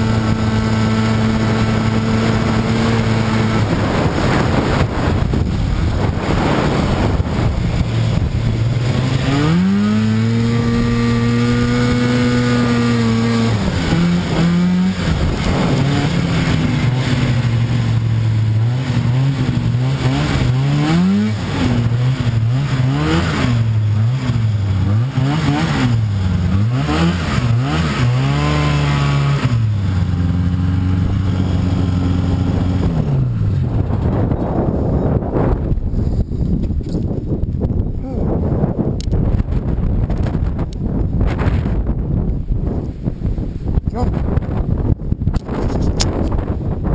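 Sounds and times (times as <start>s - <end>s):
snowmobile engine revving: 0.0s - 35.8s.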